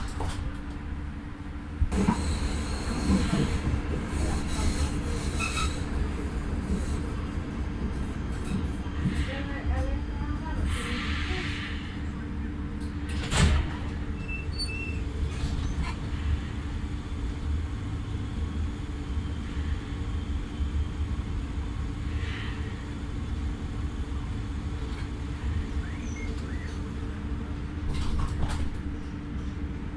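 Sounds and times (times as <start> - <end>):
train doors clunking open: 0.0 - 1.0, 1.8 - 10.0, 10.6 - 16.5, 24.7 - 29.1
steady hum of train car: 0.0 - 29.9.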